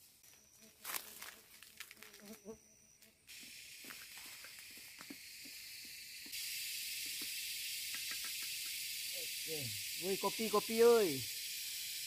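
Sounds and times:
water heating hiss: 3.3 - 12.0
small ticks and pops: 7.0 - 8.8.

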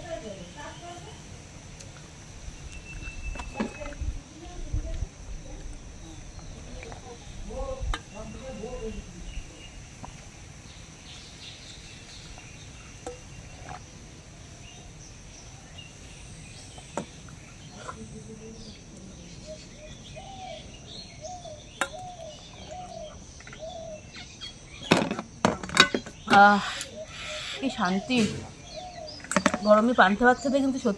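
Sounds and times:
high insect drone: 0.0 - 30.9.

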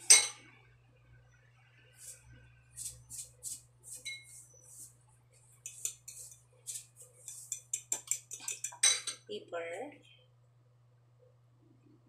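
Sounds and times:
spoon clinking against bowl: 0.0 - 0.4, 5.7 - 6.4, 7.2 - 9.2
salt grains rattling in shaker: 2.8 - 4.9, 5.7 - 8.8.

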